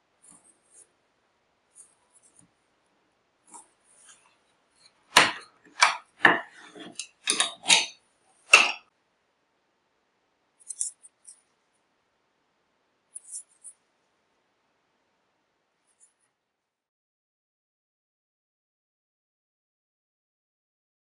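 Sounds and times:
cord scraping on wooden jig: 3.5 - 7.9.

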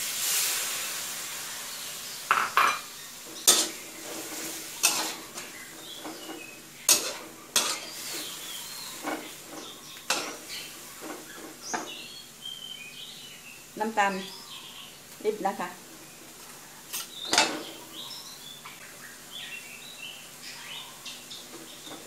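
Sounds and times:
faint sizzle: 0.0 - 22.0
metal spatula scraping a wok: 3.2 - 11.9, 16.9 - 17.8.

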